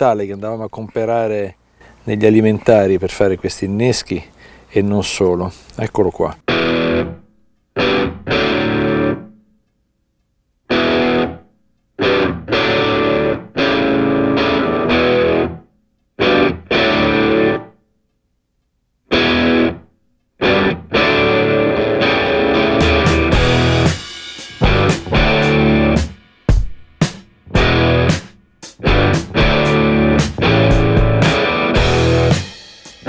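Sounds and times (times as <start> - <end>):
distorted electric guitar chords: 6.5 - 7.2, 7.8 - 9.4, 10.7 - 11.4, 12.0 - 15.6, 16.2 - 17.7, 19.1 - 19.8, 20.4 - 26.2, 27.4 - 33.0.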